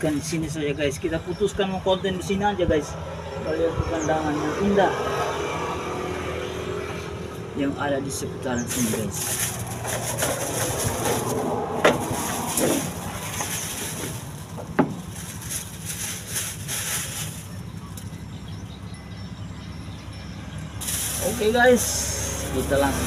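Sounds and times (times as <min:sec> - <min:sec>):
plastic bags rustling: 0:08.6 - 0:18.1, 0:20.8 - 0:23.0
knocks on wooden planks: 0:14.6 - 0:15.0.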